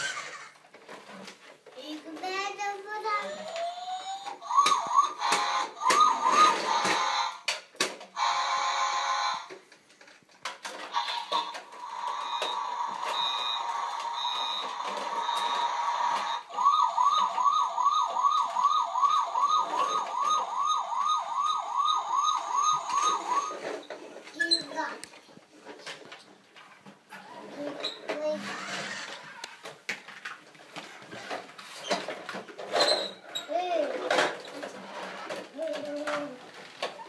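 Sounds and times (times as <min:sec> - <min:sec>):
fast wailing toy siren: 0:03.2 - 0:07.4, 0:12.1 - 0:23.6
toy siren steady tone with beeps: 0:03.2 - 0:07.4, 0:08.2 - 0:09.5, 0:11.0 - 0:23.7.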